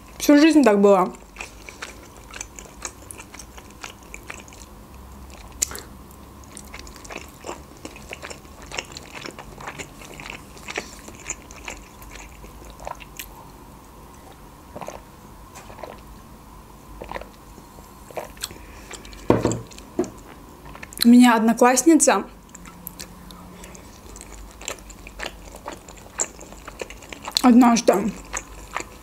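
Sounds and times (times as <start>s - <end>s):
wet chewing mouth clicks: 1.2s - 13.4s, 22.5s - 29.0s.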